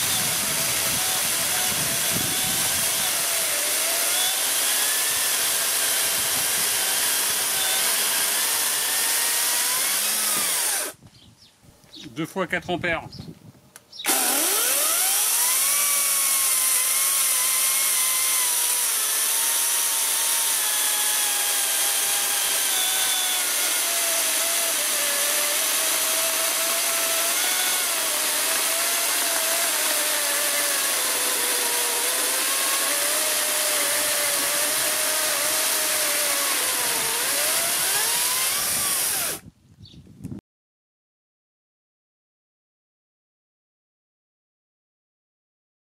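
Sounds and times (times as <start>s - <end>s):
chainsaw cutting log: 0.0s - 11.0s, 14.0s - 39.5s.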